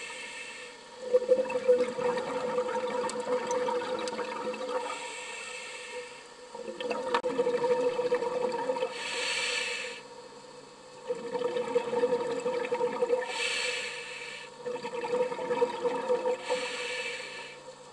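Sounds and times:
regulator hissing inhalation: 0.0 - 0.8, 4.9 - 6.3, 8.9 - 10.1, 13.2 - 14.6, 16.4 - 17.6
steady hum: 0.0 - 17.9
bubbling exhalation underwater: 14.6 - 16.4.

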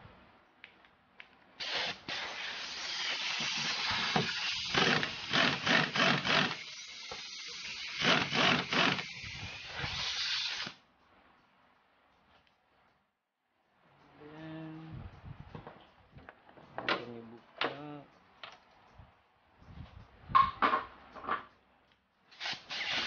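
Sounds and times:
air hissing: 1.6 - 10.8, 22.3 - 23.0
pneumatic impact wrench hammering: 1.6 - 10.8, 22.4 - 23.0.

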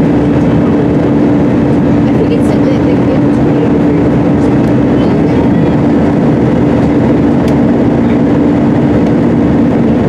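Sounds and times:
jet engines at climb power: 0.0 - 10.0
low cabin hum: 0.0 - 10.0.

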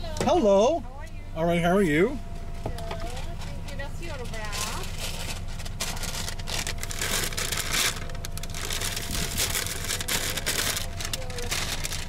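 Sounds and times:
car engine idling: 0.0 - 12.0
paper bags rustling: 4.2 - 12.0.

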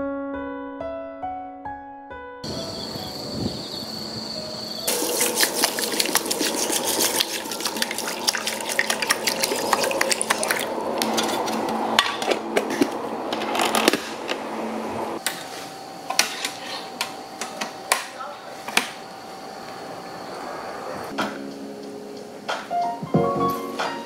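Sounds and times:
water pouring onto rice: 4.9 - 10.8.

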